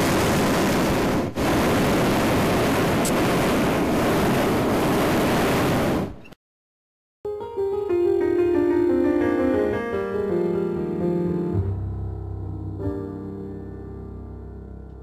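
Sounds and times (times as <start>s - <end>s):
piano music: 7.2s - 15.0s.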